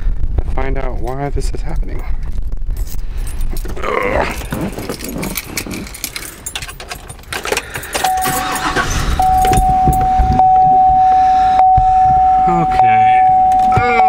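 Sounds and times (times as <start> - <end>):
keys jangling: 2.8 - 10.1
dashboard warning tone: 8.0 - 14.0.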